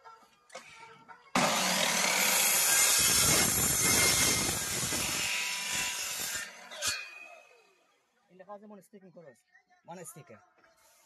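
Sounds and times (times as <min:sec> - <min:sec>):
mitre saw cutting wooden board: 0:01.4 - 0:07.3.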